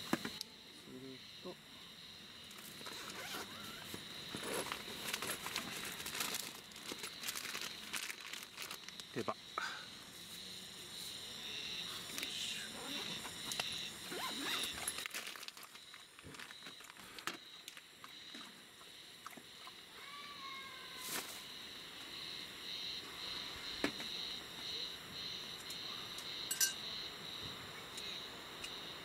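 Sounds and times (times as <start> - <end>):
plastic bag crinkling: 4.4 - 9.0, 14.8 - 17.0.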